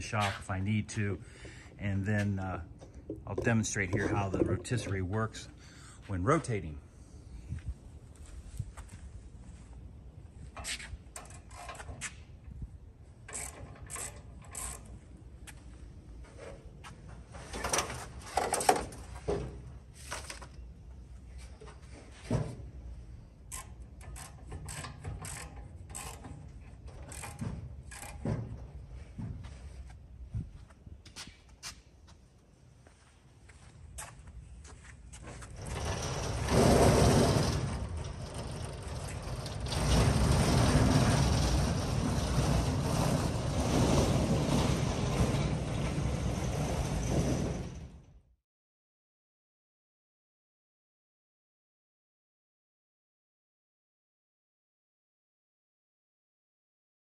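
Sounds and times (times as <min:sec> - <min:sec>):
casters rolling over concrete: 0:01.2 - 0:05.6, 0:35.2 - 0:47.9
metal clicking and clunking: 0:02.7 - 0:05.4, 0:23.5 - 0:28.9, 0:35.3 - 0:47.8
wind noise on microphone: 0:07.2 - 0:11.3, 0:30.2 - 0:31.0.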